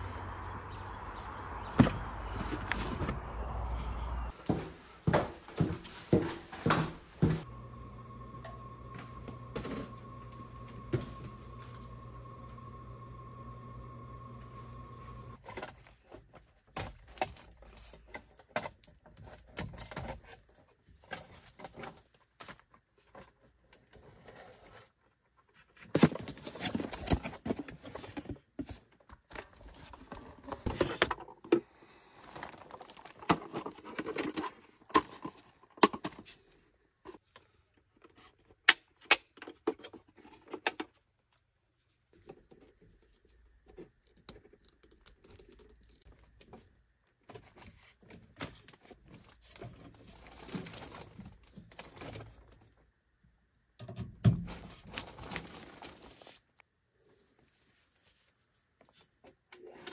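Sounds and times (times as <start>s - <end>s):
tools and parts clicking and rattling: 37.1s - 41.0s
rustling: 41.0s - 52.9s, 54.4s - 59.2s.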